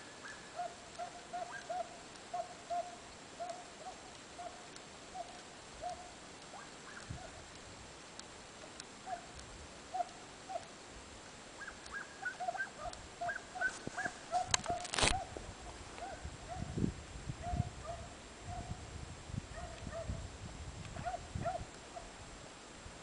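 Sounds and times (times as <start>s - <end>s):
hounds yelping: 0.2s - 7.4s, 9.0s - 10.7s, 11.6s - 15.4s
loud rustle: 3.1s - 16.3s.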